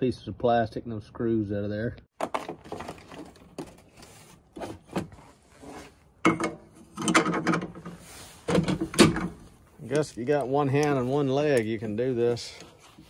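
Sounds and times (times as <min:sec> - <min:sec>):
metal parts clanking and rattling: 0:06.2 - 0:10.9.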